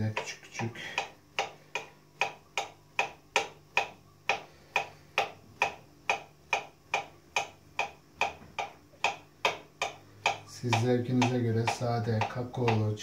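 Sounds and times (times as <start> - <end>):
knife slicing and tapping countertop: 8.3 - 12.9.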